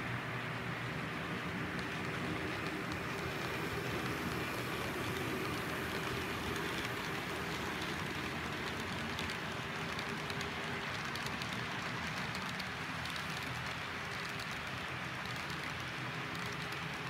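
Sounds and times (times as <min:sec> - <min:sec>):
model train wheels rattling on track: 0:00.6 - 0:17.0.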